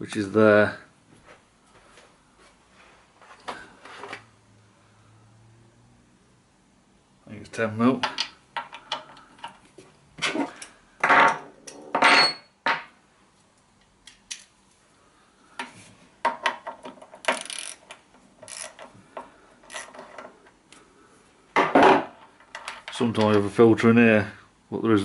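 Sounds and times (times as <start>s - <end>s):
ratchet clicking: 17.2s - 18.9s, 19.7s - 20.0s.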